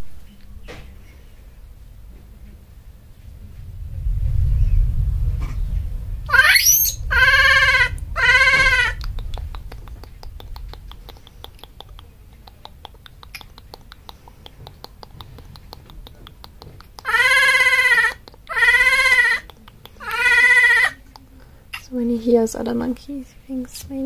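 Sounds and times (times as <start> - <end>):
baby monkey screaming: 6.3 - 9.3, 17.0 - 21.0.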